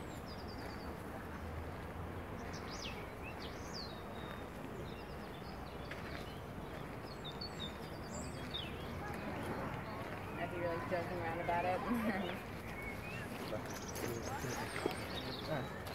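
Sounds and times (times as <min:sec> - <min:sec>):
songbirds chirping: 0:00.0 - 0:15.9.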